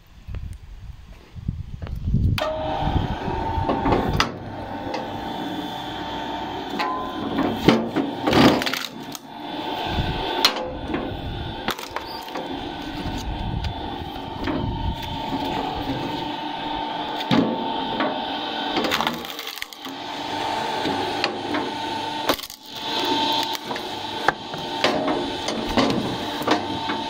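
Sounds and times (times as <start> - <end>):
electric motor whining: 2.4 - 27.0
wood splitting burst: 3.6 - 9.3, 11.6 - 13.3, 17.1 - 27.0
logs splitting with sharp knocks: 7.6 - 9.3, 11.6 - 13.3, 18.8 - 20.0, 20.8 - 27.0.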